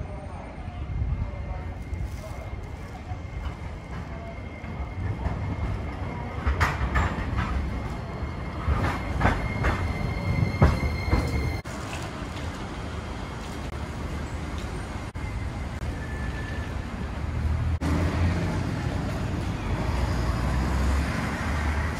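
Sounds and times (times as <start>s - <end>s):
tram running hum: 0.0s - 21.9s
tram wheels knocking on track: 3.8s - 7.9s, 8.6s - 11.6s.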